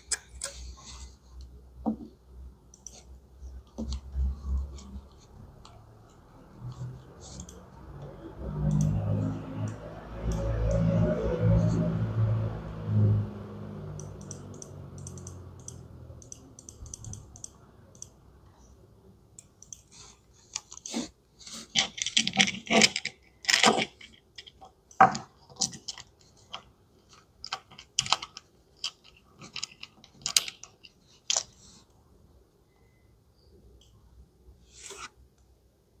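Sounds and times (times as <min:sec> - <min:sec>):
plastic toys clicking and rustling: 0:21.7 - 0:31.6.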